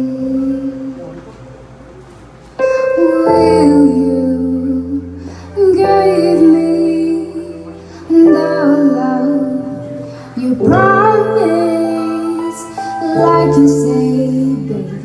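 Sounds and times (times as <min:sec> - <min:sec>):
person singing: 0:00.0 - 0:01.2, 0:02.6 - 0:15.0
low accompaniment: 0:00.0 - 0:15.0.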